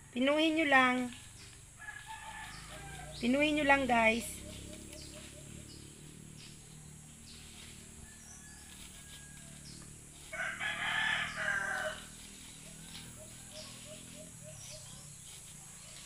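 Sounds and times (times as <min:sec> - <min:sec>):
rooster crowing: 0:01.8 - 0:03.3, 0:07.8 - 0:14.9.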